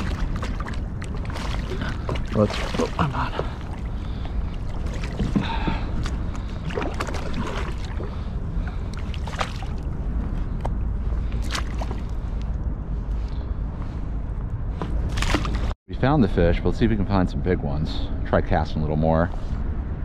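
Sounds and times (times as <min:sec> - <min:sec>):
water against hull: 0:00.0 - 0:14.0, 0:14.6 - 0:15.8
wind rumble on microphone: 0:00.0 - 0:20.0.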